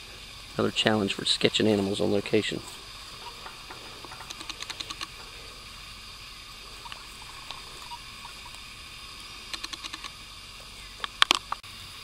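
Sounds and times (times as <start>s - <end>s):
steady hiss: 0.0s - 12.0s
quick clicks: 4.0s - 5.2s, 9.5s - 10.2s.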